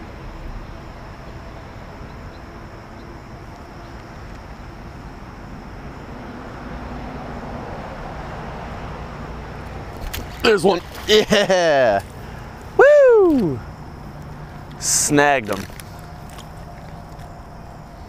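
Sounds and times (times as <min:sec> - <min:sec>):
distant road traffic rumble: 0:00.0 - 0:18.0.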